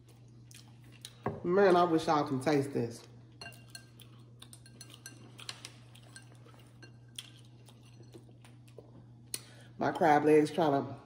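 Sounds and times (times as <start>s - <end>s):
steady low hum: 0.0s - 11.0s
glass bowls and utensils clinking: 3.4s - 8.2s.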